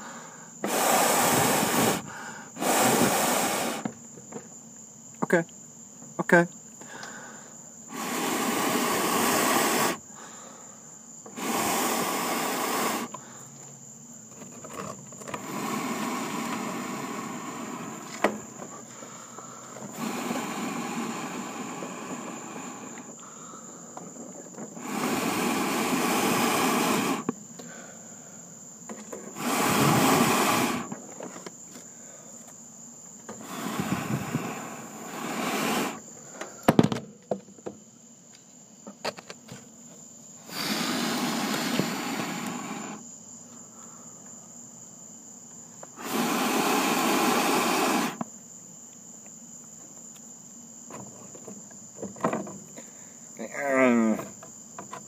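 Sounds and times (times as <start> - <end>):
person blowing on embers: 0.0 - 3.9, 6.8 - 13.6, 15.2 - 28.3, 29.2 - 31.0, 33.4 - 36.7, 40.4 - 43.0, 45.9 - 48.2
crickets chirping: 0.0 - 55.0.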